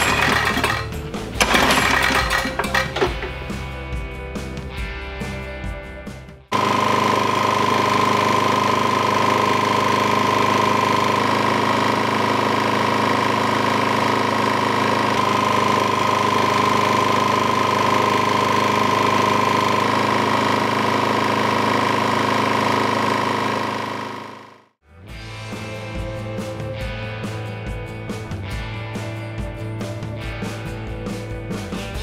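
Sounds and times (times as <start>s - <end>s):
lawn mower engine running: 0.0s - 24.8s.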